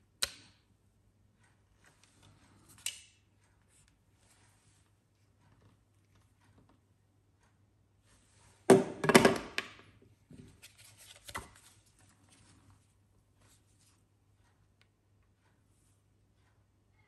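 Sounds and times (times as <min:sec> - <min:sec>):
plastic clippers knocking on table: 0:08.7 - 0:09.7.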